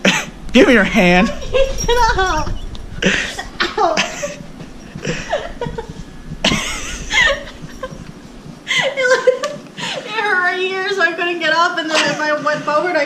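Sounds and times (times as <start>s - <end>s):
gasping breaths: 3.0s - 3.6s, 4.2s - 9.0s
breathy laughter: 3.0s - 10.1s.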